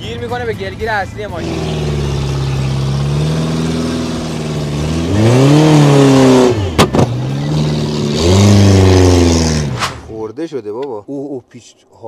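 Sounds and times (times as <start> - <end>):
car engine revving: 1.2 - 10.1
sharp cracks: 9.6 - 10.2.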